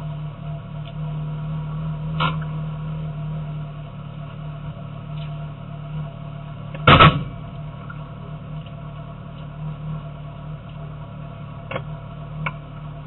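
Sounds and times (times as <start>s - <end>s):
low car cabin hum: 0.0s - 13.0s
loud sharp thud: 6.8s - 7.4s.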